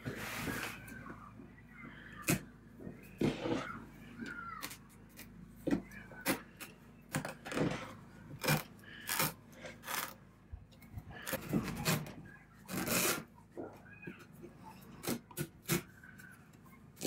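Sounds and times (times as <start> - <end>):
fabric tearing and crackling: 7.1 - 10.2, 12.7 - 13.3.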